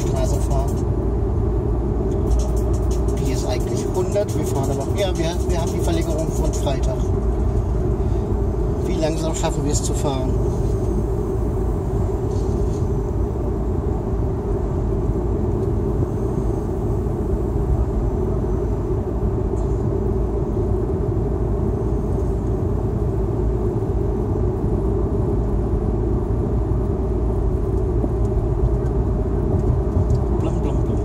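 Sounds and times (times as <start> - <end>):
car driving road noise: 0.0 - 31.0.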